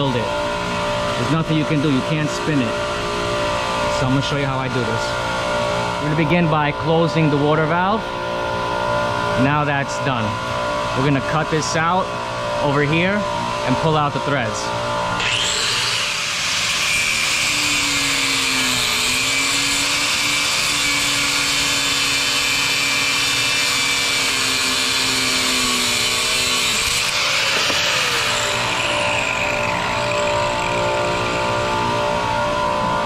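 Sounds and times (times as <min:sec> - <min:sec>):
angle grinder cutting pipe: 0:15.1 - 0:33.0.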